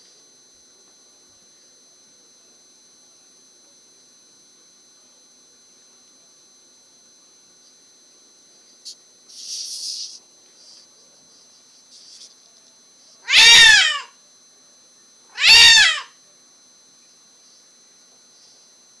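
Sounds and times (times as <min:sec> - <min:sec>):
cat meowing loudly: 0:13.2 - 0:14.2, 0:15.3 - 0:16.2.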